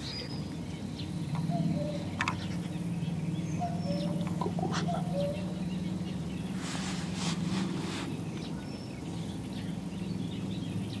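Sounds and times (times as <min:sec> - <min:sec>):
steady low hum: 0:00.0 - 0:11.0
brief rustling: 0:06.6 - 0:08.2.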